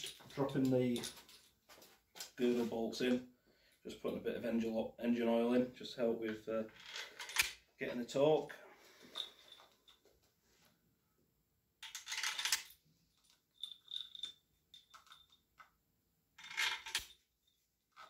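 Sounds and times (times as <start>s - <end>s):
metal bolts clinking: 13.3s - 15.5s.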